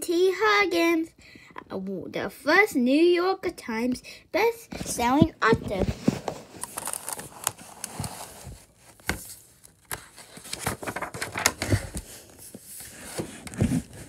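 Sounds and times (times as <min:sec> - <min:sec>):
paper pages rustling and flipping: 0:04.8 - 0:14.0.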